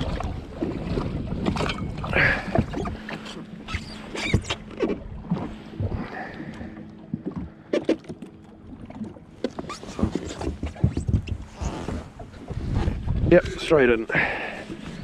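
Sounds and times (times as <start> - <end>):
water lapping against hull: 0.0 - 15.0.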